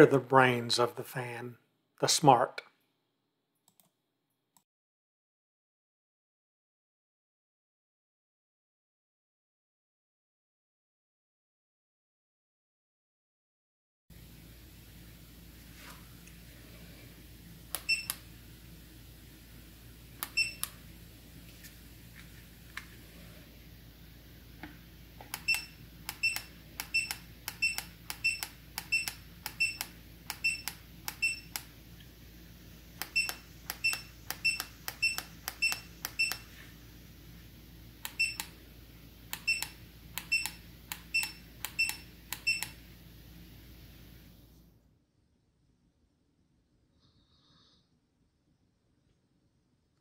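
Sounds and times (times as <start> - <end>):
remote button clicks: 17.8 - 18.2, 20.2 - 20.8, 25.2 - 31.7, 33.0 - 36.5, 38.0 - 38.6, 39.3 - 42.8
short high beeps: 25.4 - 29.8, 30.4 - 31.5, 38.2 - 38.4.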